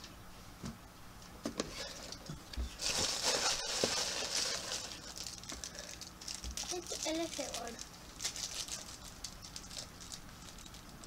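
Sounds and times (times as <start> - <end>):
packaging rustling and crinkling: 2.6 - 11.0.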